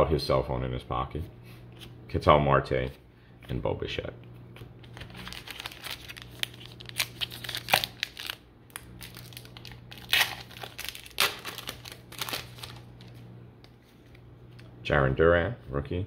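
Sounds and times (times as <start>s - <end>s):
card pack wrapper crinkling and tearing: 4.8s - 13.2s.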